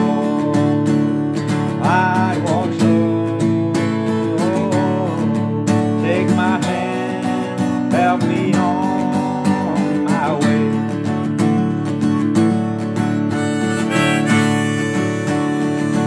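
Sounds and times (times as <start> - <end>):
acoustic guitar strumming: 0.0 - 16.0
harmonica melody: 13.2 - 16.0.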